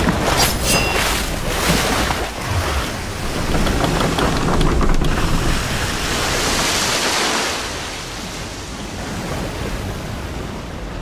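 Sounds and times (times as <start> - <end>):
ocean waves washing: 0.0 - 11.0.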